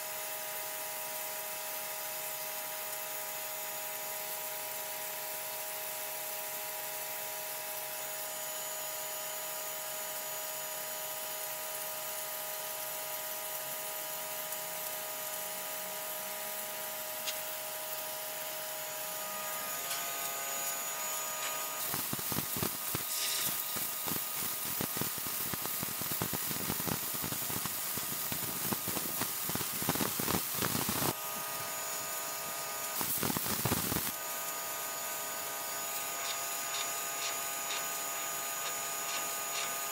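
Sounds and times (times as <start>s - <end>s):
pressure washer spraying concrete: 0.0s - 39.9s
motor whine: 17.3s - 24.2s, 30.0s - 39.9s.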